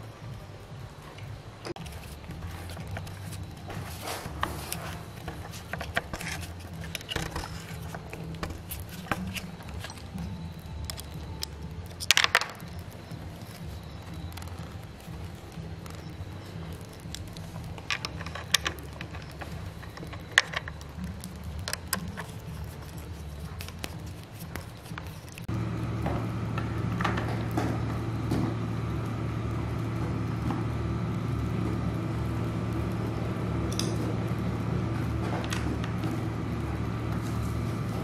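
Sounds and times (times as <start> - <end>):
low steady hum: 0.0 - 38.0
tools clicking on plastic housing: 17.8 - 20.8.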